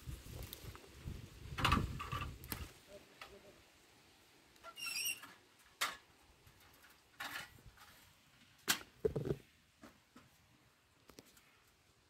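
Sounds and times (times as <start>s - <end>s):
short high squeak: 4.7s - 5.3s
grapes dropped into plastic bowl: 9.0s - 9.4s.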